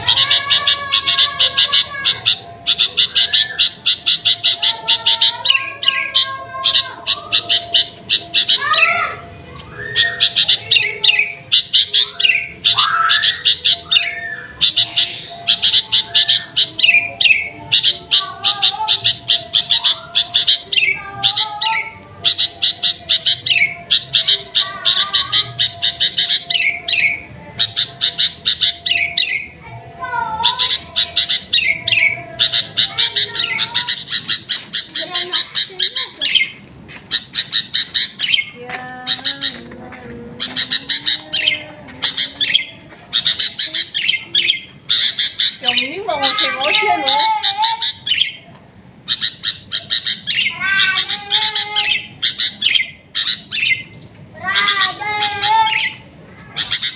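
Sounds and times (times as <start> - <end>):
bird whistled notes: 0.0 - 18.0
bird singing sharp chattering notes: 0.0 - 29.6, 30.4 - 39.7, 40.4 - 56.0.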